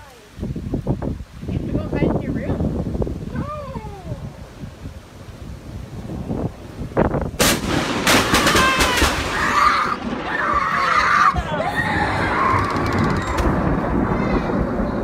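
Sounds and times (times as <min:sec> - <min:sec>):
lightning crack: 0:04.1 - 0:15.0
person screaming and shouting: 0:08.4 - 0:13.2.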